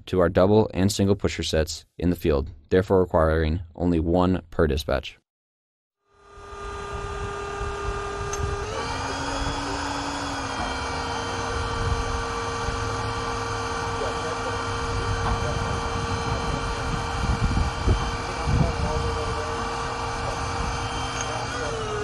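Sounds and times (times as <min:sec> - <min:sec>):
hydraulic power unit motor whine: 0:06.1 - 0:22.0.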